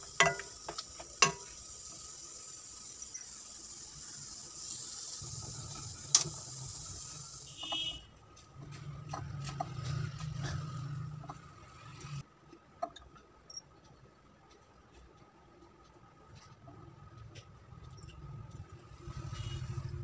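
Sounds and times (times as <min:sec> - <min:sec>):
soup simmering: 0:00.0 - 0:07.9.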